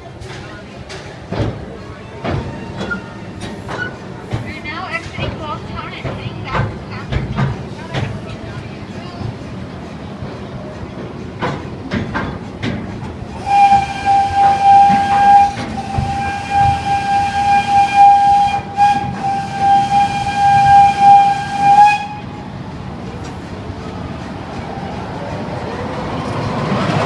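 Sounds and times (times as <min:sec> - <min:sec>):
train cars rattling on track: 0:00.0 - 0:27.0
train whistle blowing: 0:13.3 - 0:22.4.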